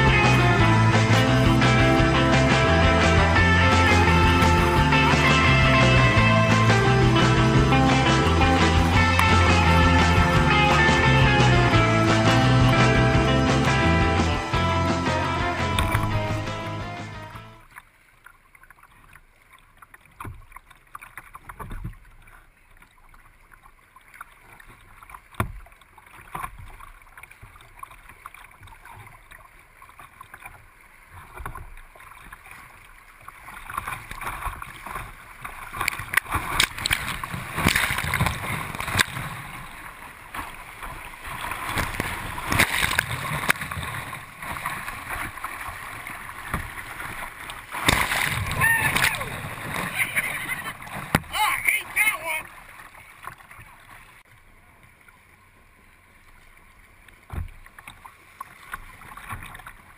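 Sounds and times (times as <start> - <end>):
rushing whitewater: 0.0 - 18.1, 27.8 - 54.1
water lapping against boat hull: 0.0 - 59.9.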